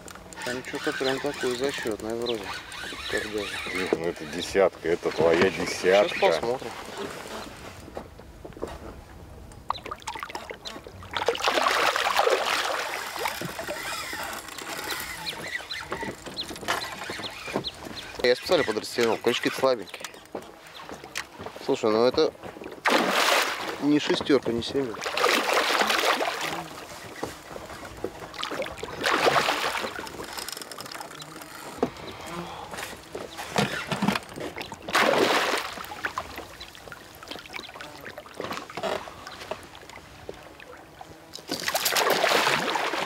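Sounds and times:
water lapping and sloshing: 0.0 - 8.8, 9.6 - 43.0
fish thrashing and splashing: 9.8 - 21.2, 22.6 - 31.8, 32.9 - 40.0, 41.4 - 43.0.

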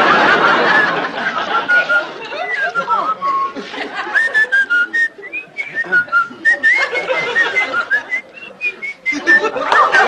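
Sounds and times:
man whistling a tune: 1.7 - 9.6.

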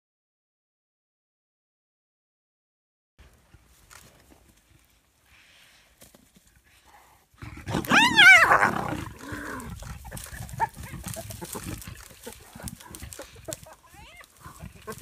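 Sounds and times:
low growling call: 7.4 - 13.6
animals scuffling: 7.6 - 15.0
loud quavering animal cry: 7.7 - 9.8.

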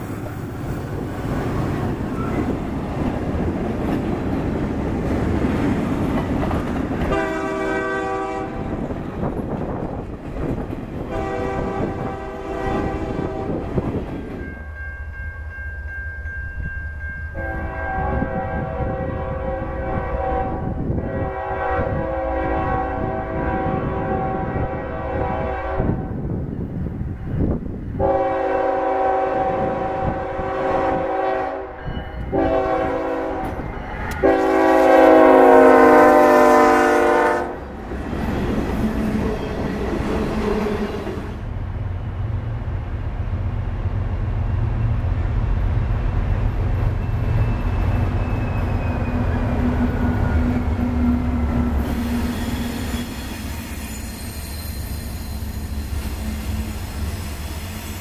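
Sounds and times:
train rumbling past: 0.0 - 58.0
locomotive air horn blasts: 7.1 - 8.7, 11.1 - 13.7, 17.4 - 26.2, 28.0 - 37.7.

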